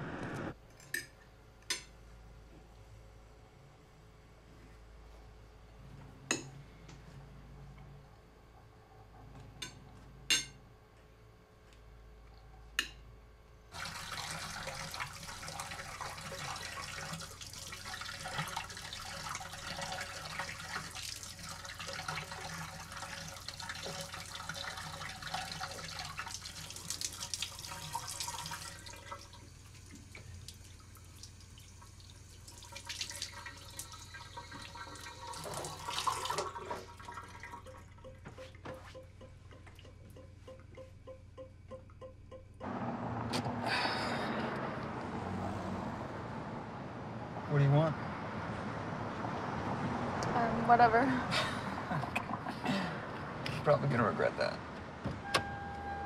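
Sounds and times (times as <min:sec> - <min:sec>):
tap running water into tub: 0:13.8 - 0:37.8.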